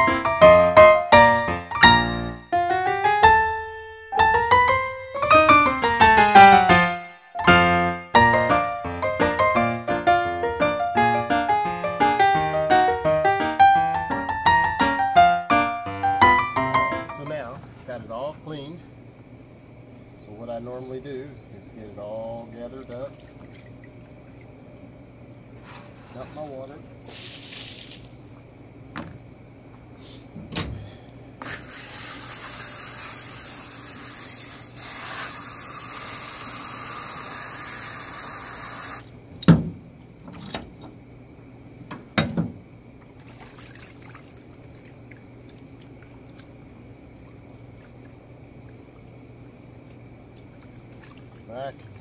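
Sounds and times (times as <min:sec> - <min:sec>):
faint water sloshing: 0:21.6 - 0:28.5, 0:42.9 - 0:52.0
hose spraying water into tub: 0:22.6 - 0:24.4, 0:25.6 - 0:28.5, 0:31.4 - 0:39.1, 0:43.0 - 0:52.0.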